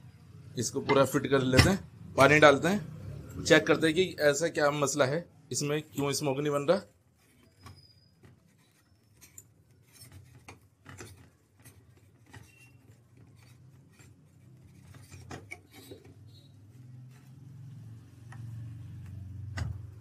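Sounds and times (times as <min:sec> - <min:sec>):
hookah stem rubbing and clicking: 0:07.1 - 0:19.4.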